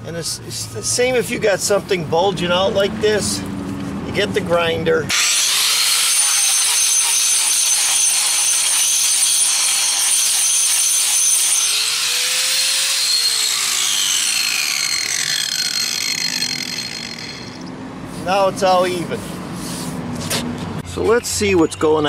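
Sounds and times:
angle grinder grinding concrete: 5.1 - 19.3.

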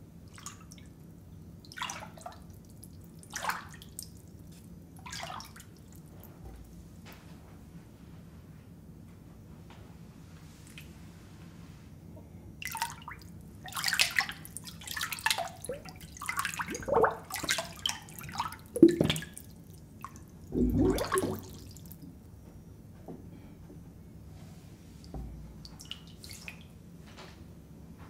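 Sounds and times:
water splashing and dripping: 12.6 - 22.0.

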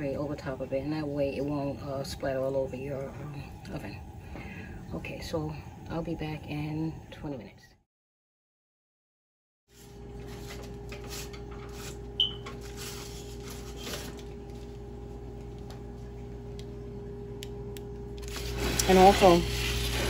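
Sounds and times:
baking tray scraping and rattling: 9.8 - 14.4, 18.3 - 20.0
steady hum: 9.8 - 20.0.

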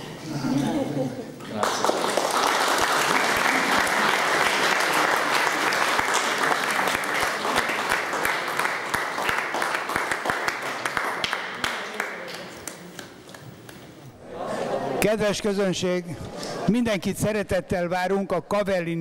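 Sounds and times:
crowd applauding: 1.5 - 13.8.

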